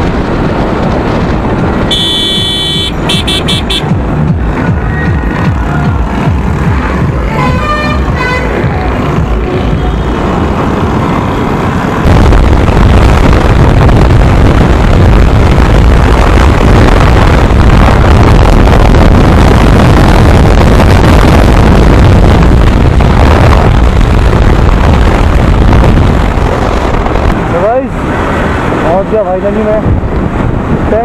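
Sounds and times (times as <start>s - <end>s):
motorcycle engine: 0.0s - 16.4s
road noise: 0.0s - 31.0s
wind rushing over microphone: 0.0s - 31.0s.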